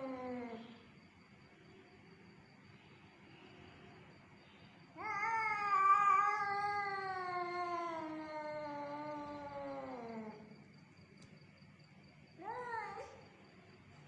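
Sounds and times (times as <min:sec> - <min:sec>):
cat yowling: 0:05.0 - 0:10.4.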